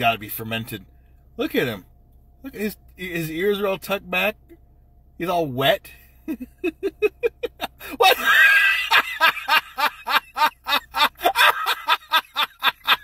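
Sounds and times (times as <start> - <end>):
person chuckling: 6.3 - 13.0.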